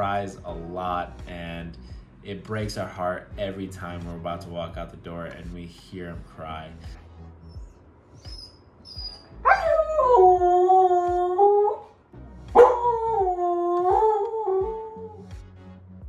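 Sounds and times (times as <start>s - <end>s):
dog howling: 8.3s - 11.9s, 12.6s - 15.2s.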